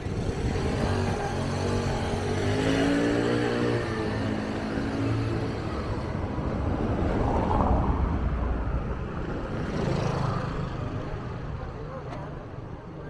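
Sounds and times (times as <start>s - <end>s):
motor scooter engine passing: 0.0s - 7.5s
low rumble of vehicles: 0.0s - 13.0s.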